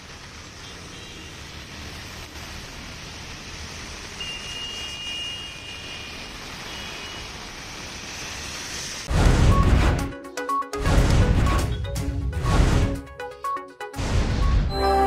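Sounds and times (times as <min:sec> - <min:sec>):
traffic driving through water: 0:00.0 - 0:09.1
heavy rain hissing: 0:00.0 - 0:09.3
high-pitched tones: 0:14.5 - 0:15.0.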